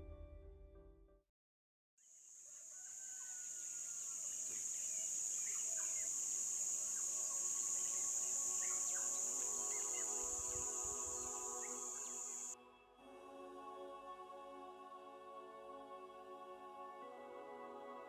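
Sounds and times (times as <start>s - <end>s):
music: 0.0s - 1.2s, 6.7s - 18.0s
insects droning: 2.1s - 12.6s
birds chirping: 3.2s - 12.6s.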